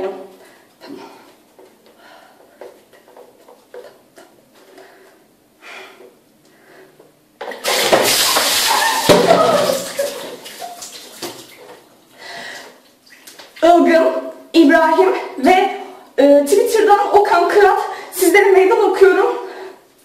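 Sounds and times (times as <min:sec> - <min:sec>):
water pouring and spattering: 0:07.6 - 0:11.8
water splashing: 0:07.6 - 0:11.8.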